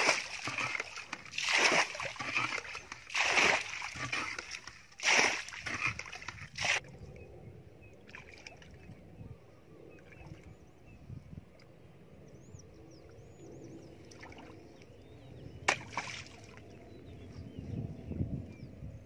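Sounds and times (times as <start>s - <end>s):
water splashing from bowl: 0.0s - 6.8s
faint shallow water sounds: 0.0s - 17.6s.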